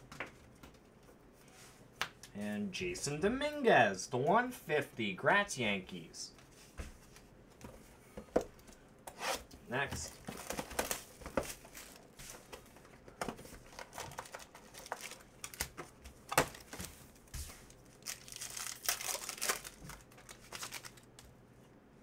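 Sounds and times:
wrapper tearing and crinkling: 13.7 - 15.8, 17.8 - 21.2.

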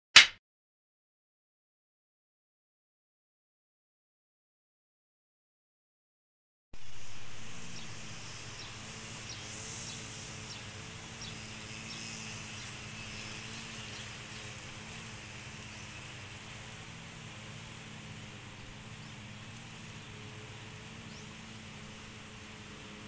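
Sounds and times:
even hiss: 6.8 - 23.0
low machine hum: 6.8 - 23.0.

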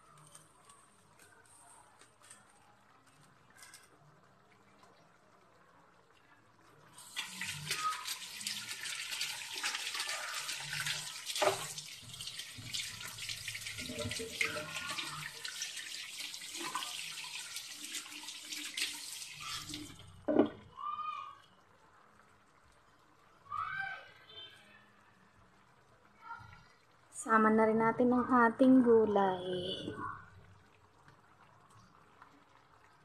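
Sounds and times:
water running: 6.6 - 20.7.

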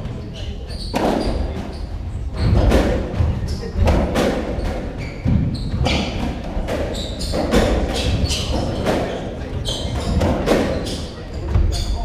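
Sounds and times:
trainers squeaking on wooden floor: 0.0 - 12.0.

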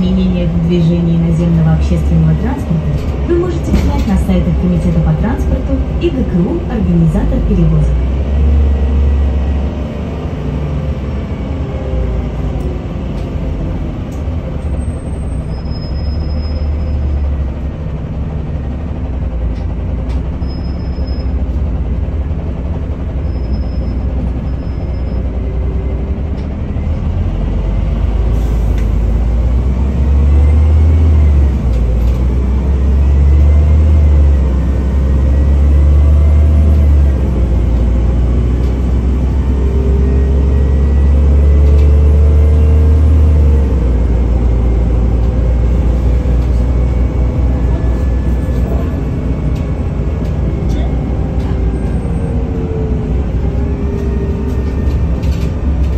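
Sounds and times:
bus engine drone: 0.0 - 55.9
road noise: 0.0 - 55.9.

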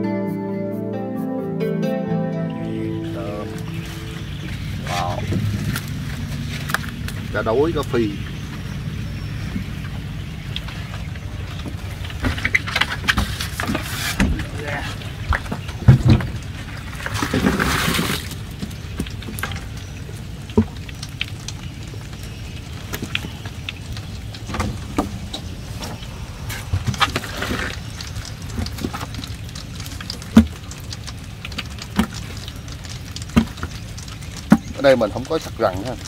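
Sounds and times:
steady low rumble: 2.6 - 13.5, 18.2 - 30.1
wet splashing pour: 16.2 - 36.0.

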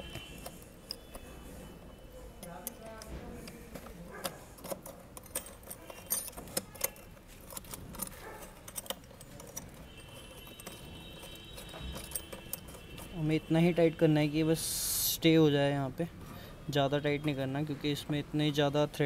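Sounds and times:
metallic clicks and rattles: 2.4 - 13.4.

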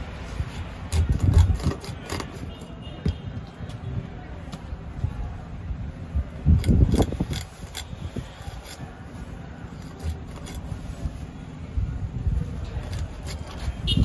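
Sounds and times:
fish scraping on blade: 0.9 - 2.7, 6.6 - 9.0, 9.8 - 10.8, 12.8 - 14.0.

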